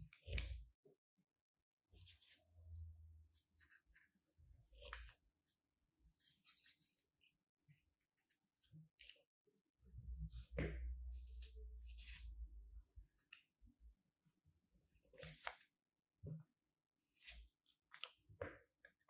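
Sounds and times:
scissors cutting paper: 0:04.7 - 0:05.2, 0:15.0 - 0:15.7.

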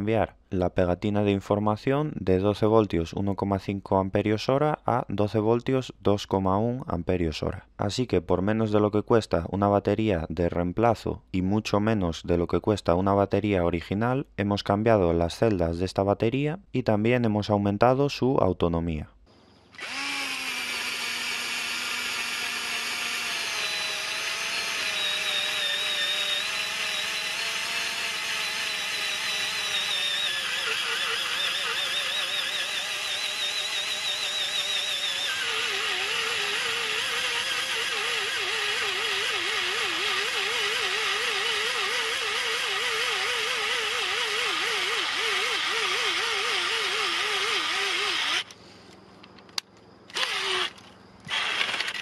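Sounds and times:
cordless drill drilling into wood: 0:19.7 - 0:48.5, 0:50.1 - 0:52.0.

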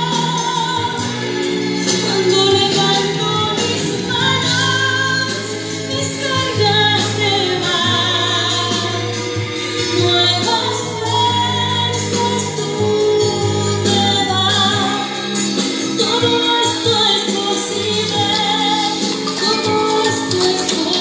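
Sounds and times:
amplified backing music: 0:00.0 - 0:21.0
woman singing into microphone: 0:00.0 - 0:21.0.

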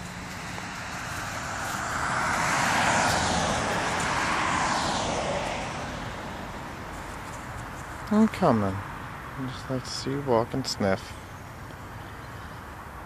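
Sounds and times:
passing vehicle rushing: 0:00.0 - 0:10.4.

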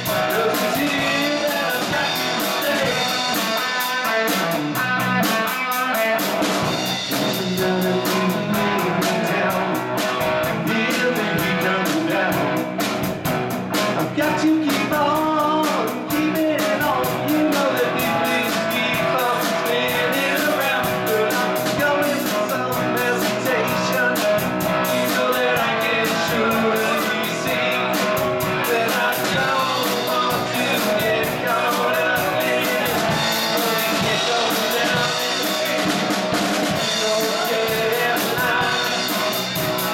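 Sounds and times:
bass guitar: 0:00.0 - 0:39.9
drum kit beat: 0:00.0 - 0:39.9
electric guitars: 0:00.0 - 0:39.9.

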